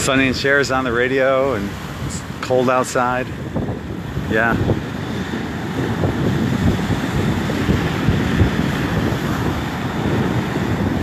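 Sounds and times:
small waves breaking on shore: 0:00.0 - 0:11.0
wind buffeting microphone: 0:00.0 - 0:11.0.

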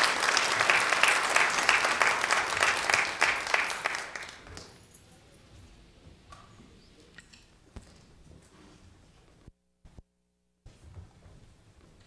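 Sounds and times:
congregation applauding: 0:00.0 - 0:04.7.

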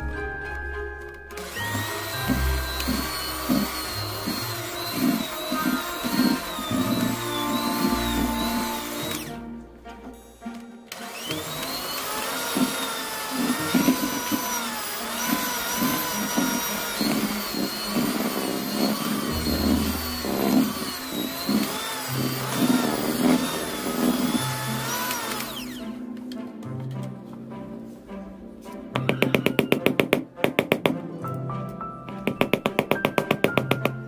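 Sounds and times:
background music: 0:00.0 - 0:34.0
electric hand mixer running: 0:01.3 - 0:09.4, 0:10.9 - 0:26.0.

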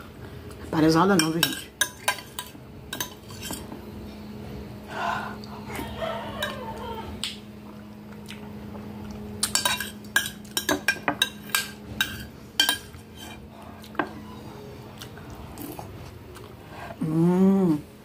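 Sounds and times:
faint steady hum: 0:00.0 - 0:18.0
metal spoon clinking on glass: 0:09.4 - 0:12.9.

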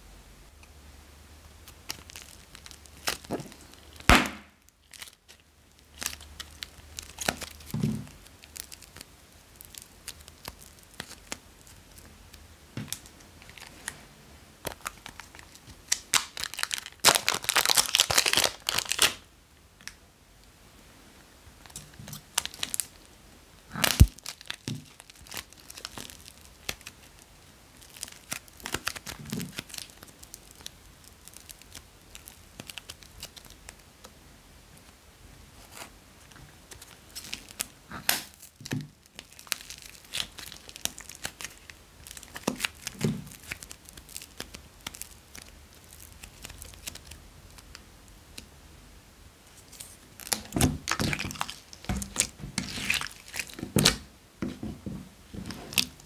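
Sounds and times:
plastic packets crinkling and tearing: 0:01.6 - 0:14.0, 0:14.6 - 0:19.2, 0:21.6 - 0:33.9, 0:35.6 - 0:48.5, 0:49.5 - 0:54.1, 0:55.3 - 0:56.0
loud snaps: 0:04.1 - 0:04.6.

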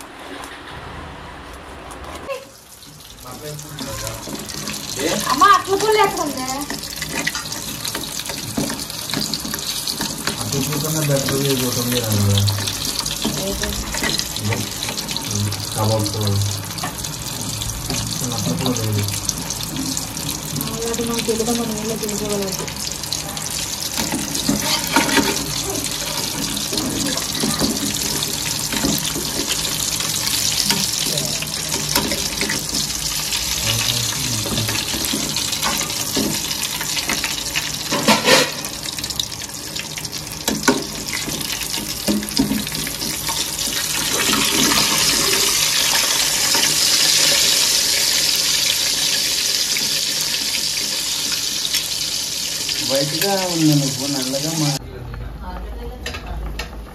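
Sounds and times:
fish sizzling in hot oil: 0:02.3 - 0:54.8
metal spatula scraping pan: 0:03.7 - 0:11.7, 0:12.4 - 0:15.2, 0:23.9 - 0:38.8.

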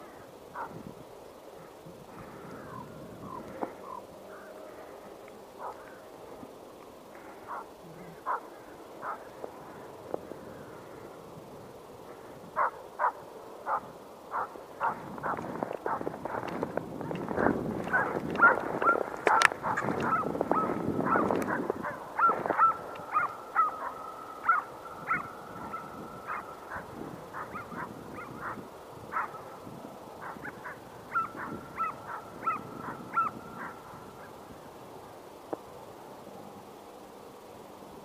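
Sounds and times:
hounds baying and yelping: 0:05.6 - 0:05.9, 0:12.6 - 0:16.5, 0:17.9 - 0:29.5, 0:30.2 - 0:34.3.

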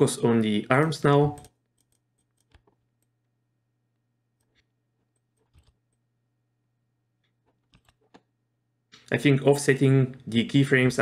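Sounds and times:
computer mouse clicks: 0:01.3 - 0:03.1, 0:07.2 - 0:08.3.

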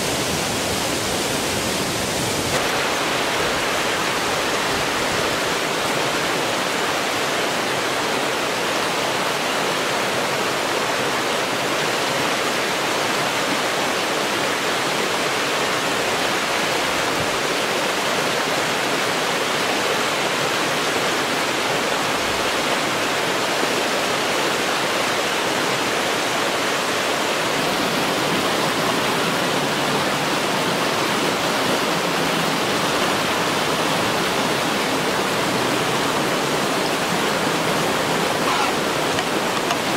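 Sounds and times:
river rushing over boulders: 0:00.0 - 0:39.9.

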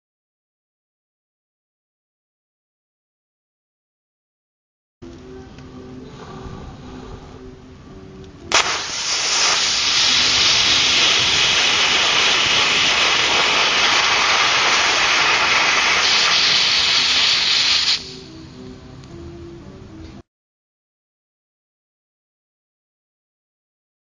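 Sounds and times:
rocket motor hissing: 0:08.5 - 0:18.4
rocket motor igniting: 0:08.5 - 0:18.4.

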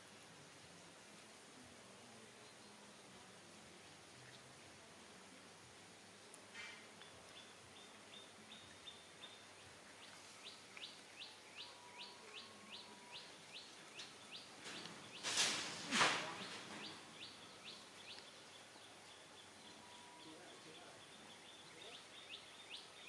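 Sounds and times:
bird chirping: 0:07.0 - 0:23.0
loud noisy rustling: 0:14.6 - 0:17.2.

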